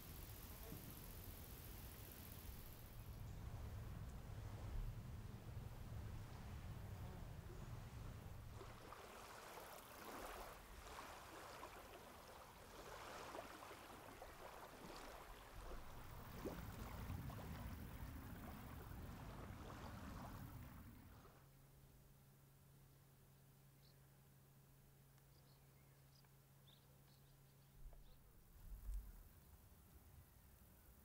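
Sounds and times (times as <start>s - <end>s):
low steady hum: 0.0s - 13.1s.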